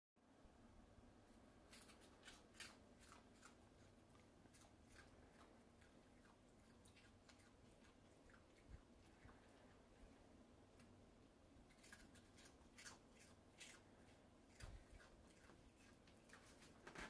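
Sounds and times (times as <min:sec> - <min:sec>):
opossum chewing popcorn: 0:01.5 - 0:17.0.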